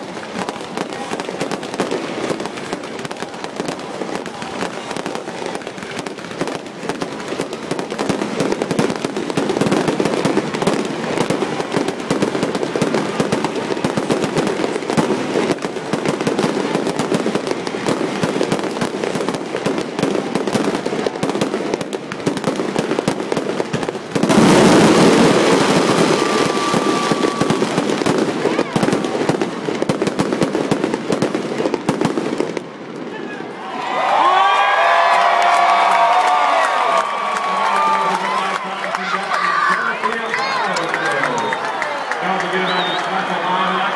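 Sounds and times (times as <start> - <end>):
fireworks bursting and crackling: 0.0 - 43.9
firework whistle: 24.4 - 28.7, 42.4 - 43.9.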